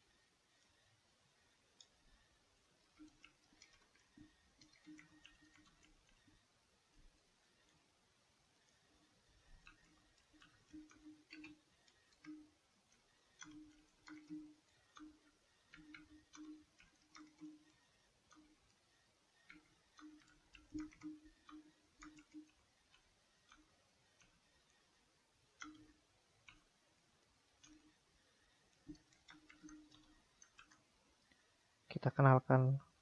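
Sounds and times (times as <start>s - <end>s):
keyboard typing clicks: 2.8s - 7.0s, 9.5s - 18.8s, 19.4s - 24.4s, 25.6s - 26.7s, 27.5s - 28.0s, 28.7s - 31.4s.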